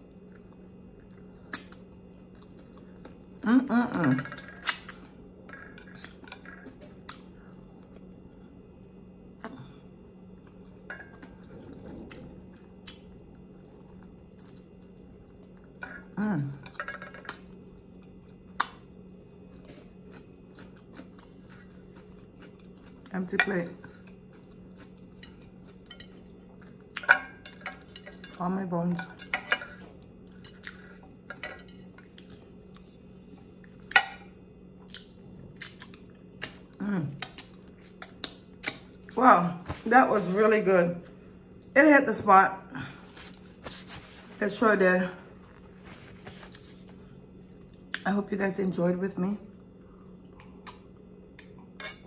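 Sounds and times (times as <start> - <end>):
faint low hum: 0.0 - 52.0
chewing and crunchy bites: 12.0 - 15.8, 17.3 - 27.1.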